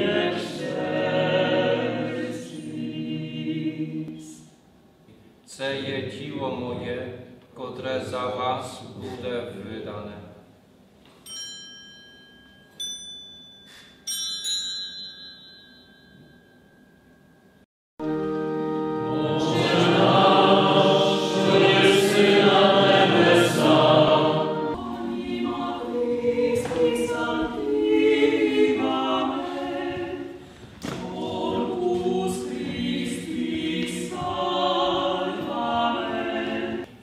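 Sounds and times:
church choir singing a hymn: 0:00.0 - 0:04.5, 0:18.1 - 0:37.0.

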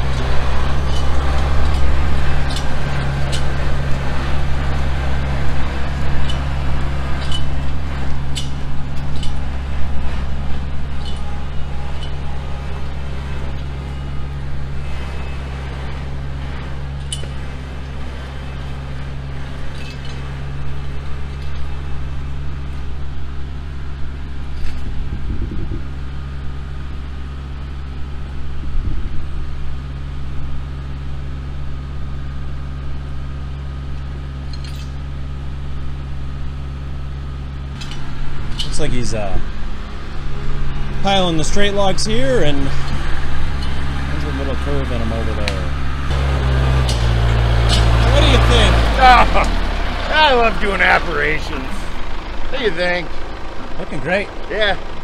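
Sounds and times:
tractor diesel engine running: 0:00.0 - 0:55.0
metallic clinks and knocks: 0:00.7 - 0:03.6, 0:06.1 - 0:06.6, 0:07.2 - 0:12.4, 0:17.0 - 0:17.5, 0:19.7 - 0:20.3, 0:34.5 - 0:35.0.

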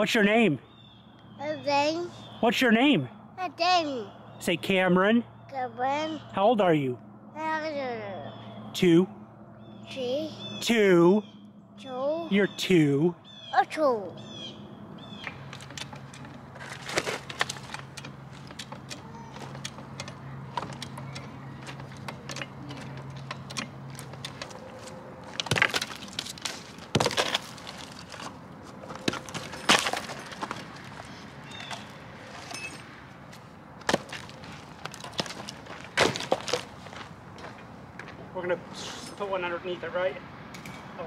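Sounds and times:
wood knocking on gravel: 0:15.2 - 0:32.6, 0:33.3 - 0:38.2.

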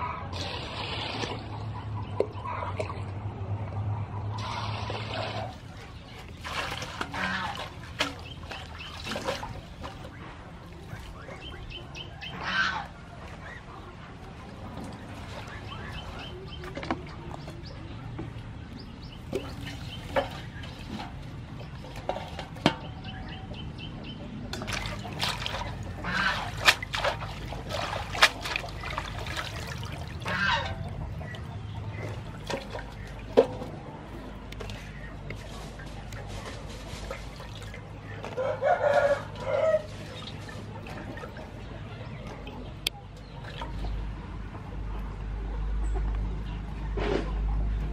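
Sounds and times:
water splashing in a metal basin: 0:00.3 - 0:03.2, 0:04.4 - 0:13.6, 0:14.2 - 0:23.8, 0:24.4 - 0:44.7
birds calling: 0:04.1 - 0:47.9
water trickling: 0:24.6 - 0:33.3.

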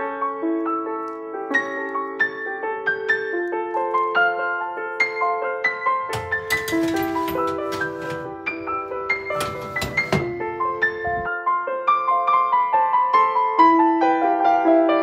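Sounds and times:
gentle piano melody: 0:00.0 - 0:15.0.

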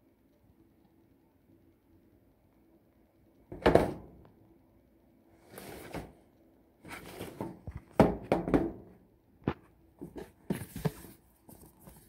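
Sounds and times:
rustling: 0:10.0 - 0:12.0.

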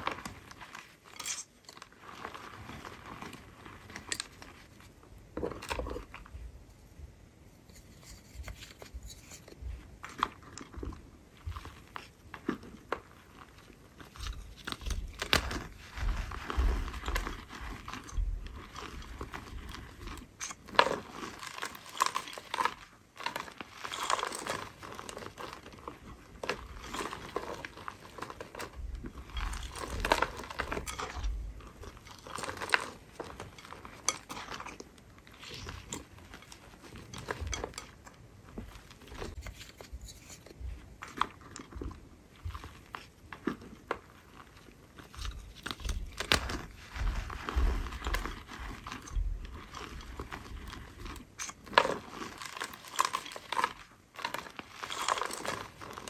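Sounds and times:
soft crunches of powder discs: 0:00.0 - 0:56.0.

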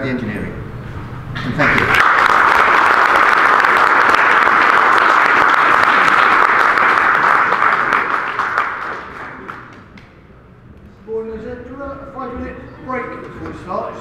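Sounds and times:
audience applauding: 0:01.6 - 0:10.1.

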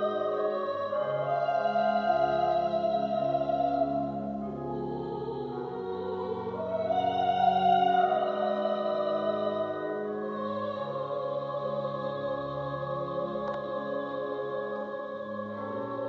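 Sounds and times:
pipe organ chords: 0:00.0 - 0:16.0.

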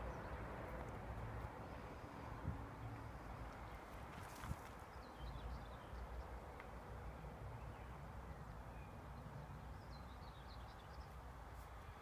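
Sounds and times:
wind rumbling on microphone: 0:02.3 - 0:04.9.

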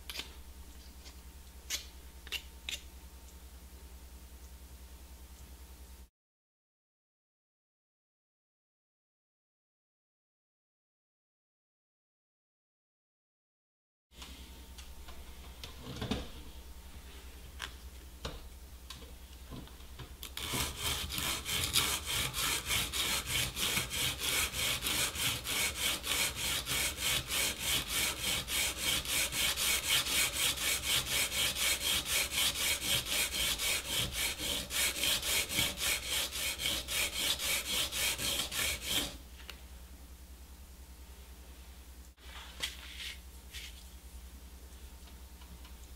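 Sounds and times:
reed scraping on sandpaper: 0:20.4 - 0:39.2.

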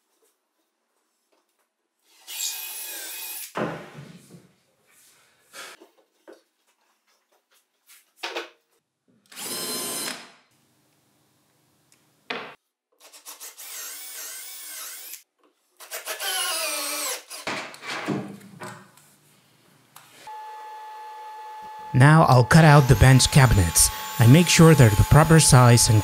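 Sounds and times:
cordless drill boring holes: 0:02.2 - 0:03.5, 0:09.3 - 0:10.2, 0:13.3 - 0:15.2, 0:15.9 - 0:17.5, 0:20.3 - 0:26.0.

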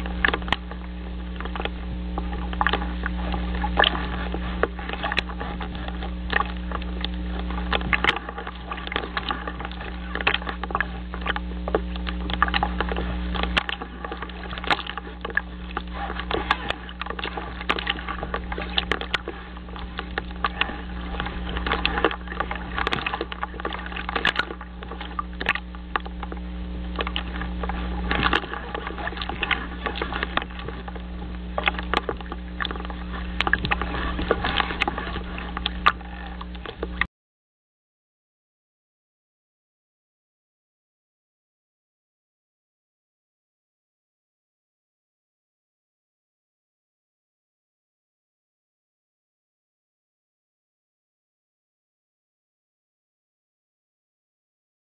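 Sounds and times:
choppy lake water: 0:00.0 - 0:37.1
steady low hum: 0:00.0 - 0:37.1
wind: 0:00.0 - 0:37.1.

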